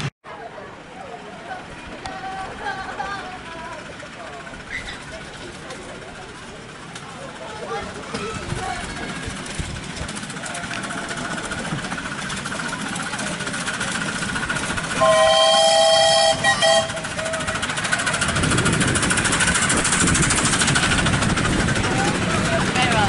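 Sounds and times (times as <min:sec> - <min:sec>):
train running noise: 0:00.0 - 0:23.0
steam locomotive whistle: 0:14.9 - 0:17.7.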